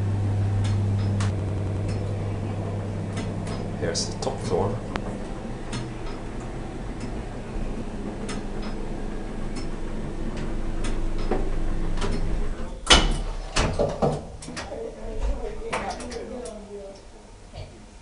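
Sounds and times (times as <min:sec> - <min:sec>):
platform lift humming: 0:00.0 - 0:16.6
knocks and clicks: 0:00.6 - 0:03.8, 0:08.1 - 0:08.8, 0:09.5 - 0:12.3
loud clunk of lift door: 0:11.0 - 0:14.3.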